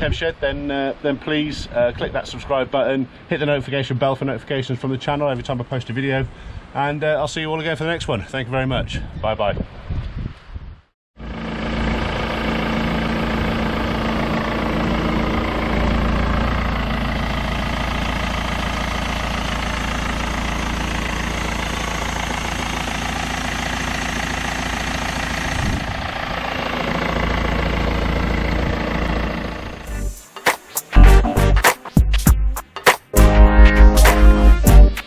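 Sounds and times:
diesel engine idling: 11.2s - 30.2s.

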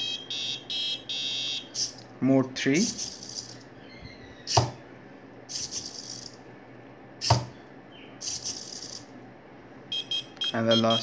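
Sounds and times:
robot feet knocking on desk: 4.5s - 4.8s, 7.2s - 7.5s
servos buzzing: 5.5s - 6.4s, 8.2s - 9.1s.

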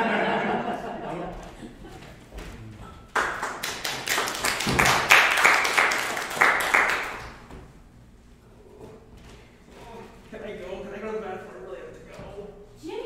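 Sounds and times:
small audience clapping: 2.0s - 7.8s.

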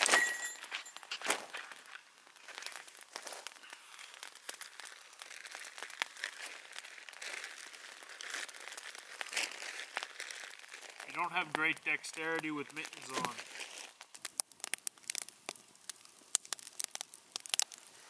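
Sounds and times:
bag crinkling and rustling: 0.0s - 11.2s, 12.9s - 14.2s
small clicks and crackles: 0.5s - 18.0s.

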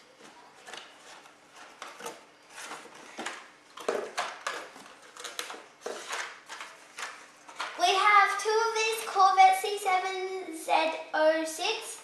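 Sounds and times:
plastic packaging rustling and scraping: 0.0s - 8.0s.

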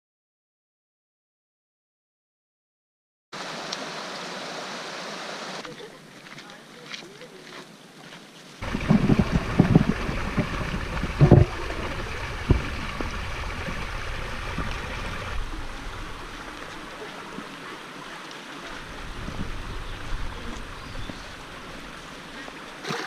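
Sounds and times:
stream running over rocks: 3.4s - 23.0s
low thumps: 8.6s - 16.1s.

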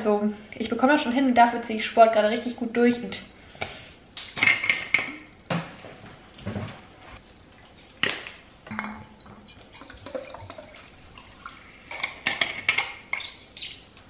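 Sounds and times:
water pouring into a bottle: 9.6s - 11.9s.

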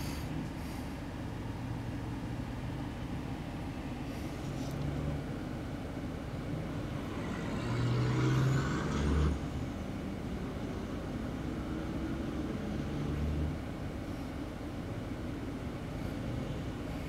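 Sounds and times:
car engines idling: 0.0s - 8.0s, 9.4s - 17.0s
heavy truck passing: 6.2s - 13.8s.

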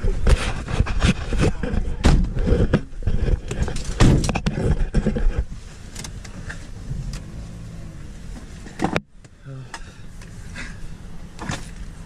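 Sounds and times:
car cabin hum: 3.8s - 12.0s.

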